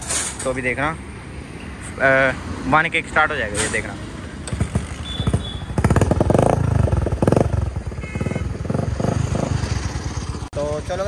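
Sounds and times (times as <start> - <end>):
motorcycle throttle blips: 4.4 - 9.8
motorcycle engine idling: 4.4 - 11.0.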